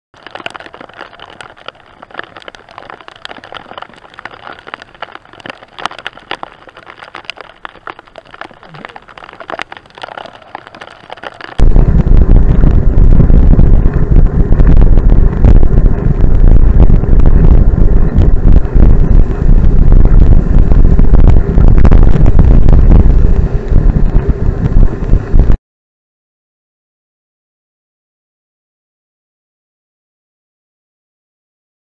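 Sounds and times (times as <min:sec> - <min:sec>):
heavy rain hiss: 0:00.2 - 0:11.6
raindrops tapping on camera: 0:00.2 - 0:11.8
wind buffeting microphone: 0:00.2 - 0:25.6.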